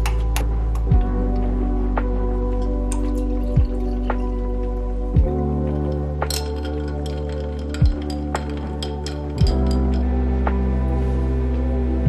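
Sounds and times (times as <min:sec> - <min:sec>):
background music with deep drum beat: 0:00.0 - 0:12.0
metal straw clinking ice in glass jar: 0:02.4 - 0:10.2.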